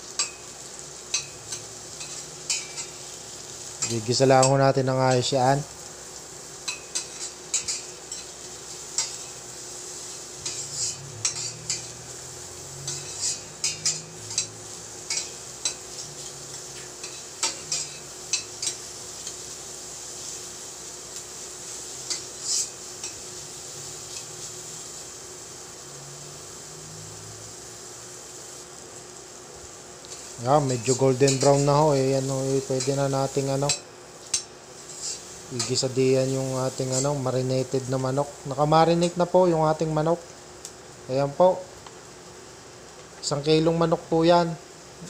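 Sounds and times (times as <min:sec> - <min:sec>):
onions sizzling in oil: 0:00.0 - 0:45.0
utensil scraping a pan: 0:10.1 - 0:12.1, 0:12.8 - 0:19.4, 0:22.0 - 0:23.2, 0:30.8 - 0:37.2.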